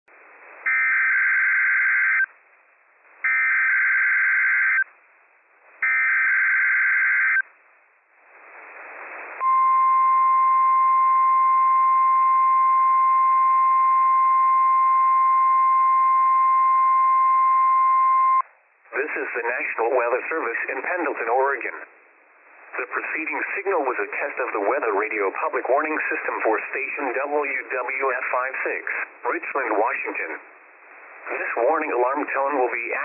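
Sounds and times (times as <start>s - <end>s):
radio hiss: 8.2s - 9.5s, 18.9s - 33.0s.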